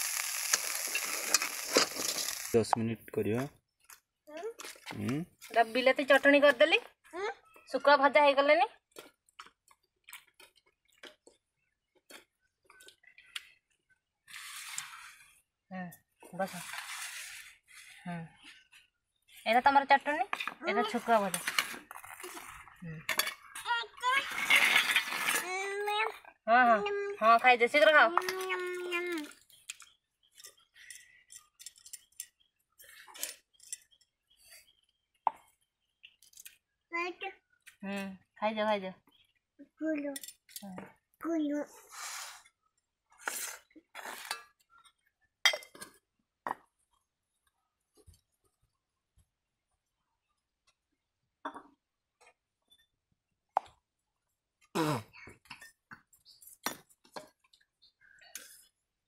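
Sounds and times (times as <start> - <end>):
steel bowls clinking: 0.0 - 2.7
steel bowls and utensils clinking: 0.1 - 2.6, 23.0 - 23.6, 29.2 - 34.0, 43.4 - 44.7, 45.5 - 46.0.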